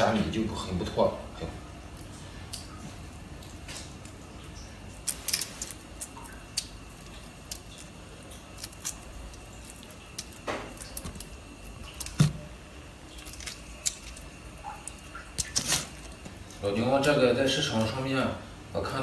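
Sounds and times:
shrimp shells snapping: 0:05.0 - 0:16.3.

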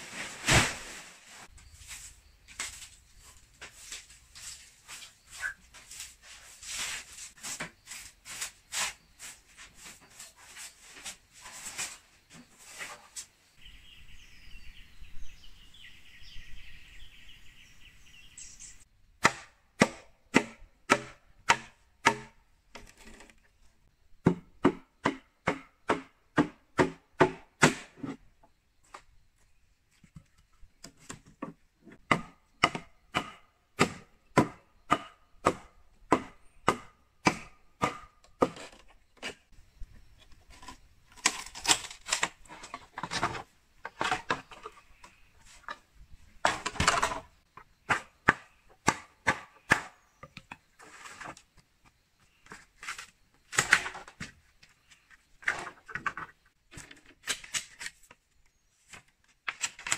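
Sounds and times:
machete chopping bamboo: 0:19.2 - 0:22.4, 0:24.2 - 0:28.0, 0:32.1 - 0:38.7, 0:47.9 - 0:50.0.

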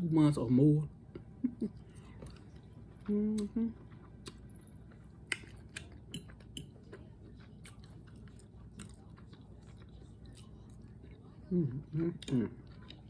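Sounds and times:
chewing with mouth clicks: 0:01.1 - 0:13.0
person humming: 0:03.1 - 0:03.7.

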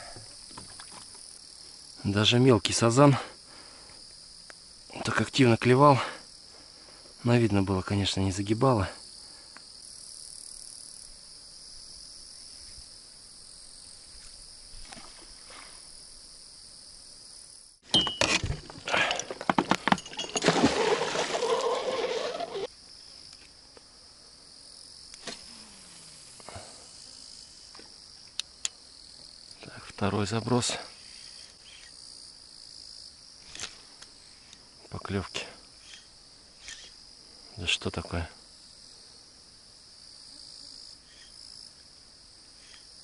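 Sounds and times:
crickets chirring: 0:00.0 - 0:43.0
metal anchor clattering on boat: 0:17.9 - 0:20.6
anchor splashing into river: 0:18.0 - 0:22.7.

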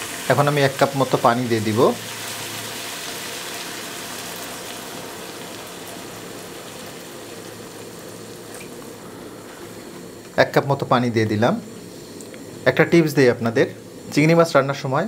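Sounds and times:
water pouring into hot pan: 0:00.0 - 0:08.7
shrimp sizzling in pan: 0:00.0 - 0:10.3.

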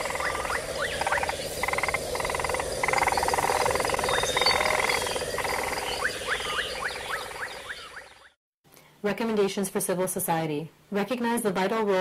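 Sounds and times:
animals calling in pulsed trills: 0:00.0 - 0:08.4.

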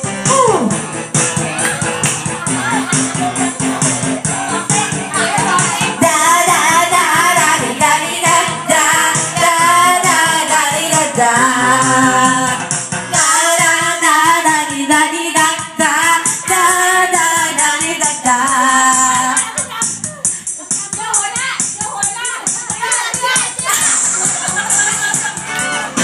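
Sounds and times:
backing track with steady beat: 0:00.0 - 0:26.0
women singing into microphones: 0:04.4 - 0:19.8, 0:20.6 - 0:24.6.

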